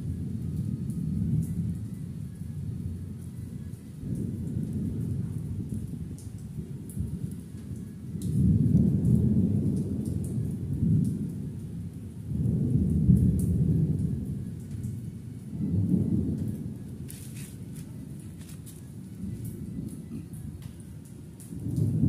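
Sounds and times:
water dripping: 0:00.0 - 0:22.0
rolling thunder: 0:03.9 - 0:07.4, 0:08.2 - 0:17.1, 0:19.0 - 0:22.0.

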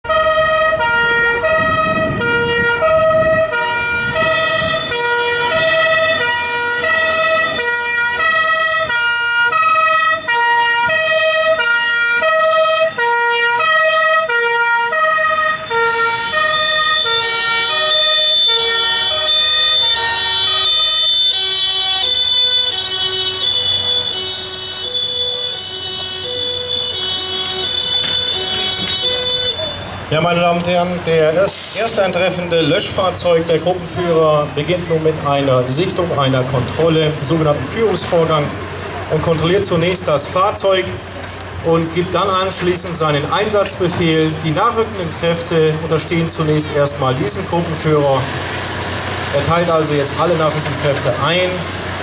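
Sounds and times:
two-tone emergency sirens: 0:00.0 - 0:32.2.

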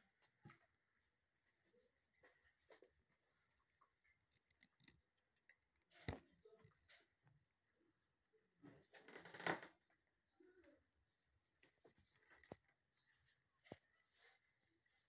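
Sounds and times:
faint small clicks: 0:03.5 - 0:06.9.

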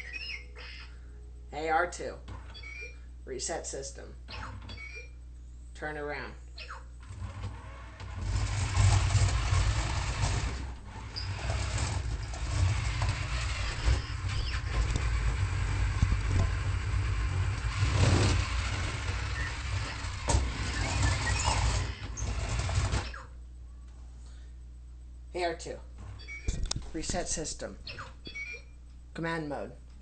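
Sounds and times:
toy robot motors whirring: 0:07.1 - 0:23.3.

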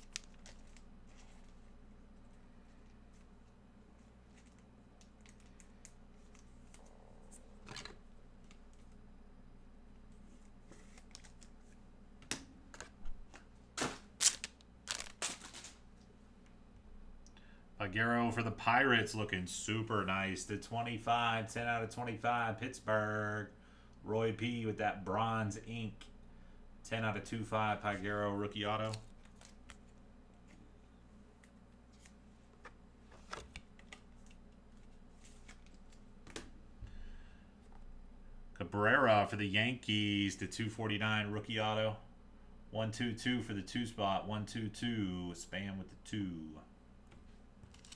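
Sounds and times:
trading cards clicking and rustling: 0:00.0 - 0:01.6
faint steady hum: 0:00.0 - 0:47.9.

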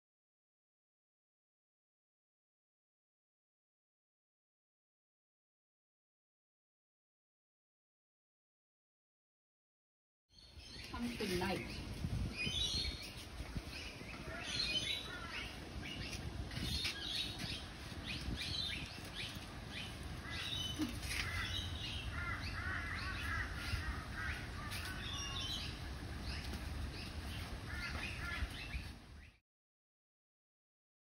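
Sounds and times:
birds chirping: 0:10.3 - 0:29.4.

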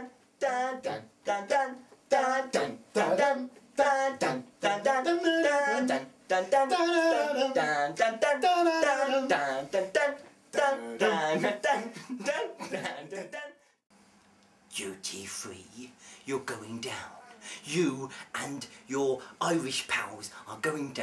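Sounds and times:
person singing a melody: 0:00.0 - 0:13.6.

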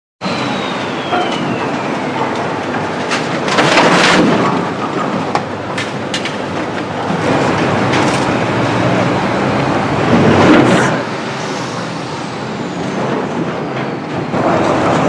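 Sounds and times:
thin falling whine: 0:00.2 - 0:03.9
machinery din: 0:00.2 - 0:15.0.

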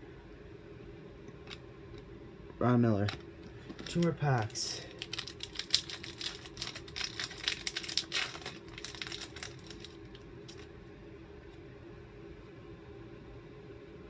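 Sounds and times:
cards being handled: 0:03.0 - 0:10.7
wrapper crinkling and tearing: 0:03.0 - 0:10.7.

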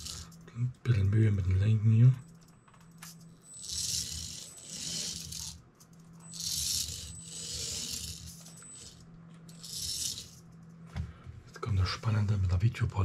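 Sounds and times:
tiny rc car motor whirring: 0:00.0 - 0:00.4, 0:03.4 - 0:05.6, 0:06.2 - 0:10.4.

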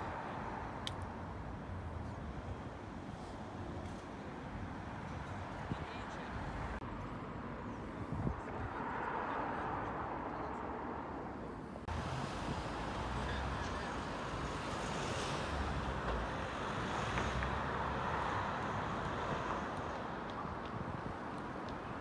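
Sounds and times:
road traffic hiss and hum: 0:00.0 - 0:22.0
low traffic rumbling: 0:11.8 - 0:22.0.

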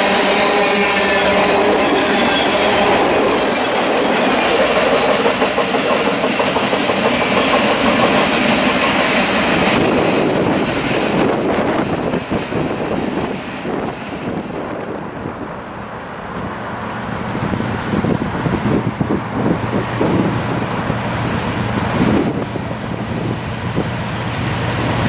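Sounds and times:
wheel squeal: 0:00.0 - 0:05.2
train wheels clattering over rails: 0:01.2 - 0:15.3.

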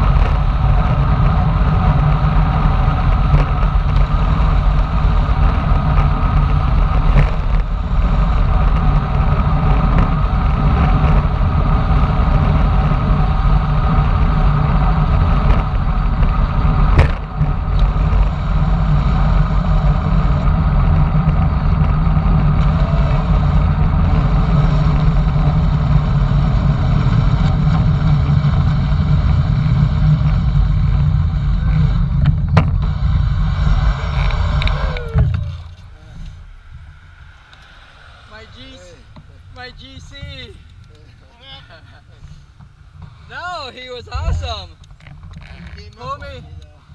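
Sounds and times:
wind roaring over microphone: 0:00.0 - 0:46.9.

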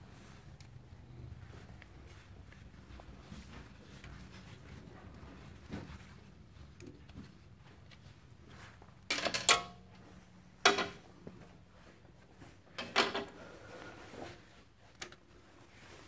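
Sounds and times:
metal tools clanking: 0:10.6 - 0:11.0.

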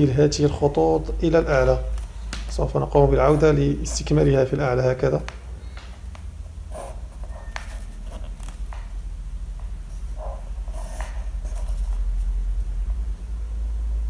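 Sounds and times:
steady low hum: 0:00.0 - 0:14.0
pencil scratching on paper: 0:03.2 - 0:04.4, 0:06.7 - 0:08.5, 0:09.9 - 0:12.3.

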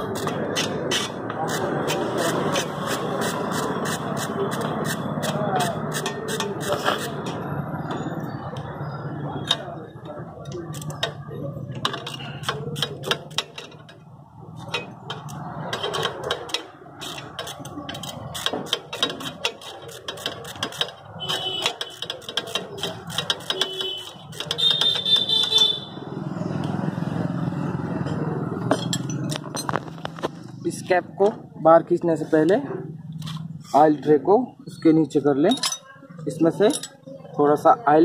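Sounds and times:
ratchet wrench clicking: 0:14.7 - 0:25.6.

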